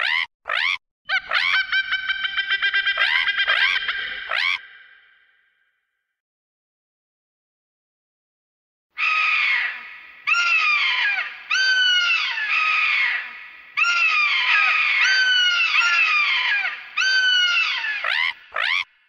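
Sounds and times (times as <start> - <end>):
creature calls: 0.0 - 1.6, 2.9 - 4.6, 18.0 - 18.9.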